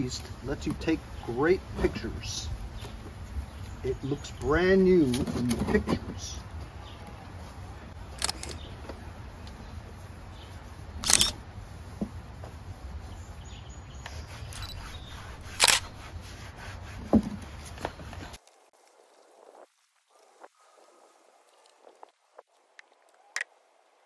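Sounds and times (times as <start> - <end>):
camera shutter clicks: 8.2 - 8.6, 11.0 - 11.4, 15.4 - 15.9.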